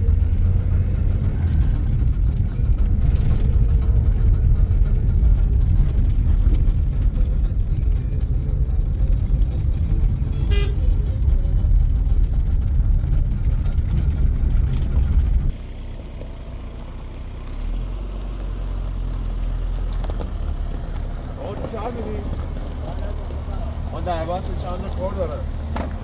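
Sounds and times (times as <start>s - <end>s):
car engine and tyre noise: 0.0s - 26.0s
car idling: 0.0s - 26.0s
car horn toot: 10.3s - 11.1s.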